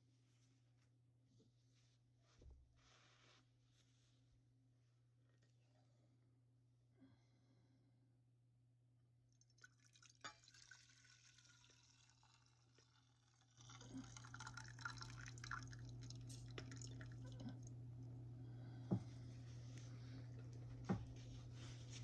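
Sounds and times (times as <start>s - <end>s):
water stream pouring into pan: 9.5s - 17.3s.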